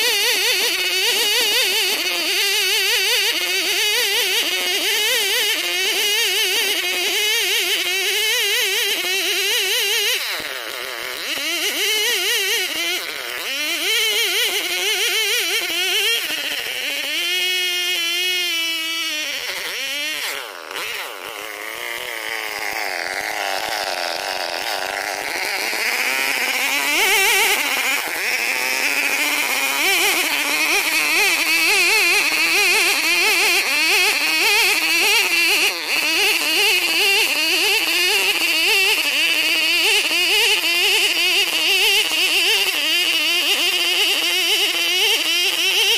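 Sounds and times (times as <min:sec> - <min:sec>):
chainsaw cutting log: 0:00.0 - 0:45.9.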